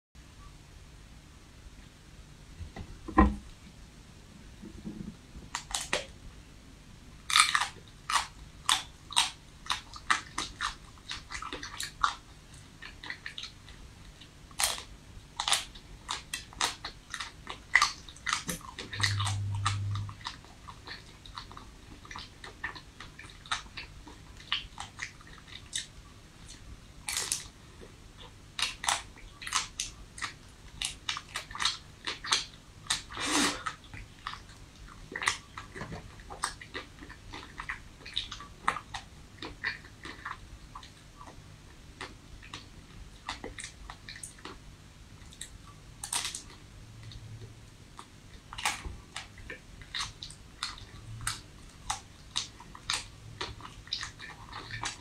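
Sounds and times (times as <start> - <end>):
crunching frozen ice cream bar: 7.3 - 12.2, 14.5 - 25.9.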